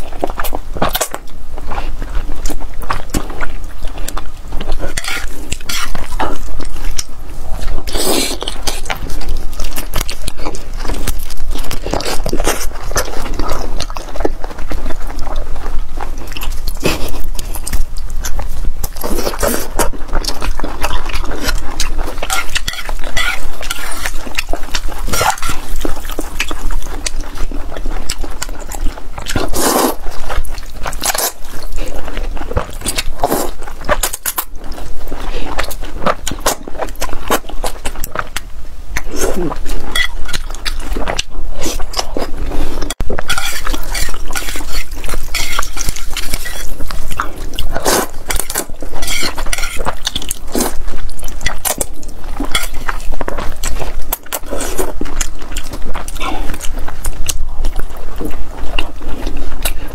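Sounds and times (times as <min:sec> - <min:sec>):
slurping and chewing noodles: 0:00.0 - 0:59.9
chopsticks clinking against pot: 0:22.3 - 0:24.1, 0:39.9 - 0:40.4, 0:43.2 - 0:46.7, 0:48.3 - 0:49.9.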